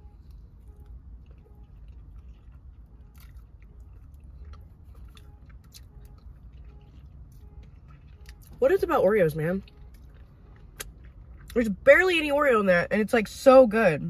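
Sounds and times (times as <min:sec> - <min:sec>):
low steady hum: 0:00.0 - 0:14.0
chewing mouth sounds: 0:00.1 - 0:08.6, 0:09.4 - 0:11.8.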